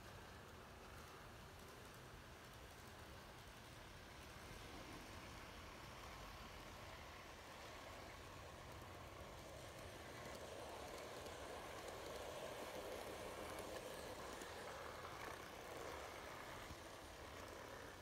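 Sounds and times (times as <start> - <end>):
model train whirring on track: 0.0 - 18.0.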